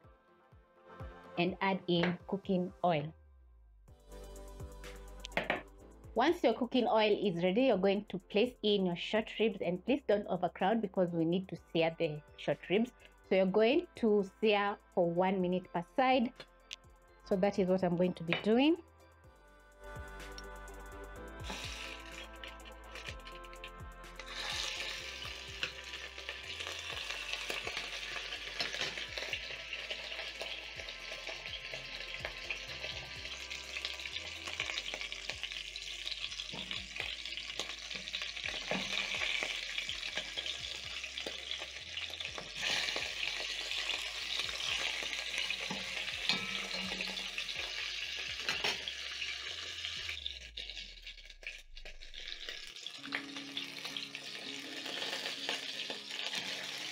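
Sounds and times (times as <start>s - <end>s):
meat sizzling in oil: 21.4s - 56.9s.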